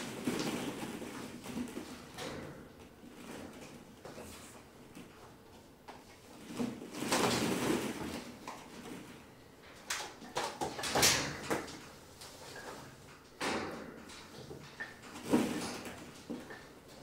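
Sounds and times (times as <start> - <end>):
plastic balls clattering: 0.0 - 5.2, 6.2 - 13.2.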